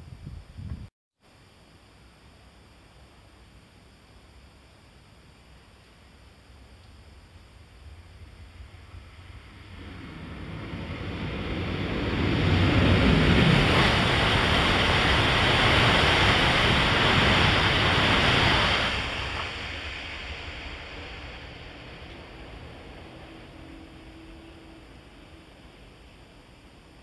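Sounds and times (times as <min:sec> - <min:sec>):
rushing wind and wheels on rail: 0:00.0 - 0:00.9, 0:06.5 - 0:27.0
high-speed train passing: 0:06.5 - 0:27.0.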